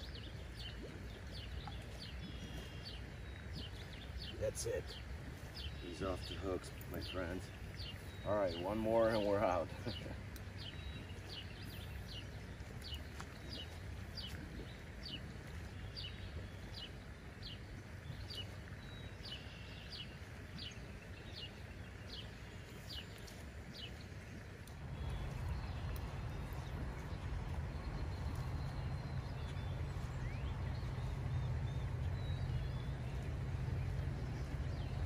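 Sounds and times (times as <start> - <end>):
bird chirping: 0.0 - 15.3, 24.9 - 35.0.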